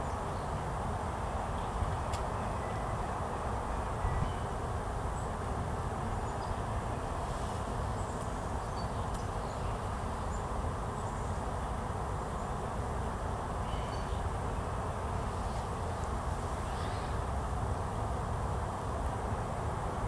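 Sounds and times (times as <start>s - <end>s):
faint bird chirps: 13.6s - 14.2s, 16.6s - 17.2s.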